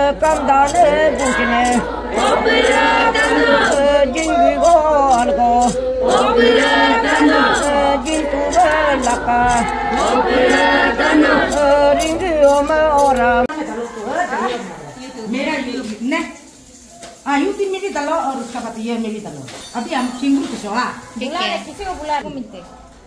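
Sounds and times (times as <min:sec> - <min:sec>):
high clinking beat: 0:00.0 - 0:13.5
crowd chanting and singing: 0:00.0 - 0:16.0.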